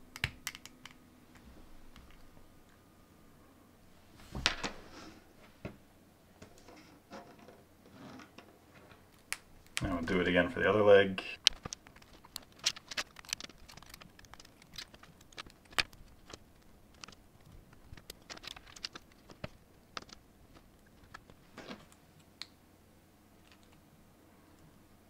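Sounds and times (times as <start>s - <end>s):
plastic parts clicking and snapping: 0.1s - 1.0s, 11.4s - 22.5s.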